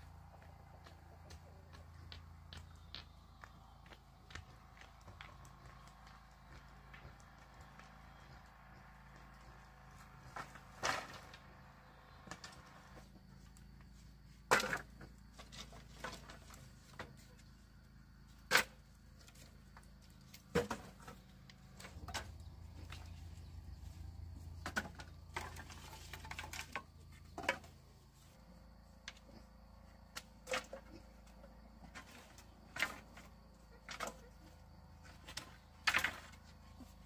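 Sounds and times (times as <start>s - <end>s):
faint low hum: 0.0s - 18.3s.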